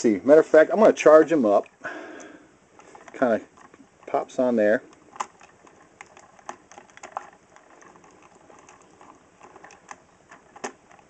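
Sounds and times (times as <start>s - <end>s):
sharp plastic click: 4.9s - 8.0s, 9.4s - 11.0s.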